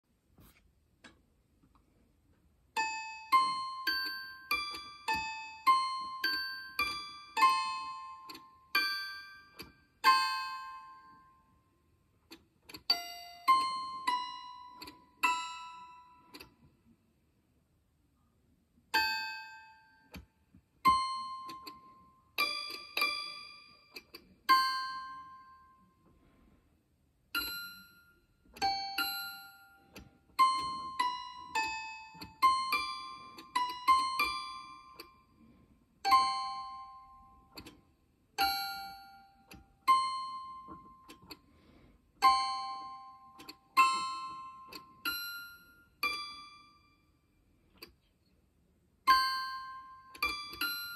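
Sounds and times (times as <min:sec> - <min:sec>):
toy piano notes: 0:02.7 - 0:16.7, 0:18.9 - 0:26.3, 0:27.3 - 0:48.1, 0:49.0 - 0:50.9.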